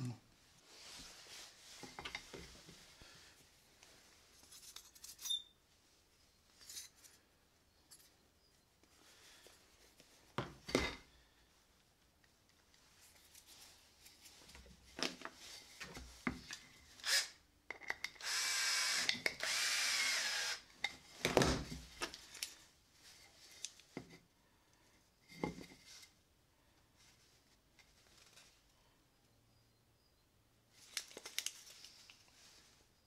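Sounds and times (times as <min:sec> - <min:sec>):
cordless drill drilling into wood: 0:17.0 - 0:17.4, 0:18.2 - 0:20.7.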